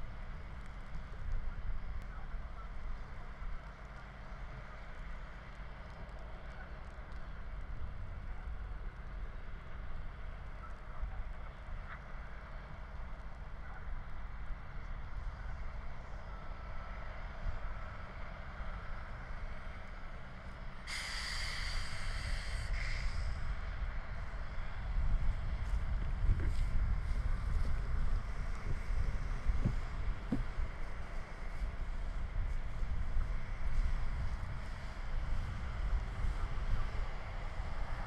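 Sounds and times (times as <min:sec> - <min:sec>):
grass fire crackling: 0:00.0 - 0:02.1, 0:02.7 - 0:09.2
wind rumble on microphone: 0:00.0 - 0:38.0
loud hiss: 0:20.9 - 0:23.4.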